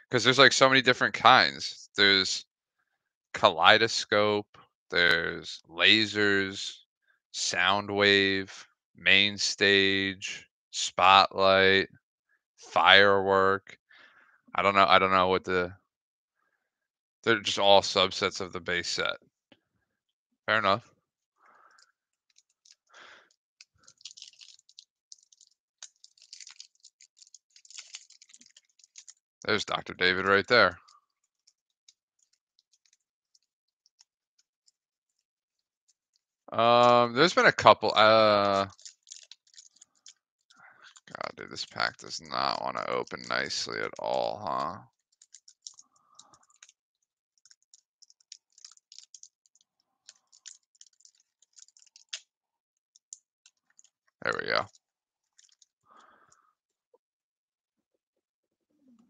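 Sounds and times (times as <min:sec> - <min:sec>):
foil wrapper crinkling: 0:22.4 - 0:29.2, 0:38.1 - 0:40.2, 0:45.0 - 0:46.7, 0:47.4 - 0:52.2, 0:55.3 - 0:55.7.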